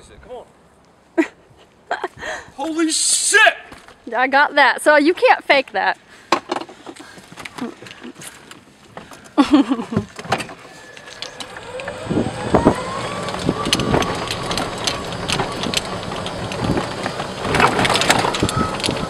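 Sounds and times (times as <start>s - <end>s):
cart knocks and rattles: 8.9s - 19.0s
golf cart motor whine: 10.4s - 19.0s.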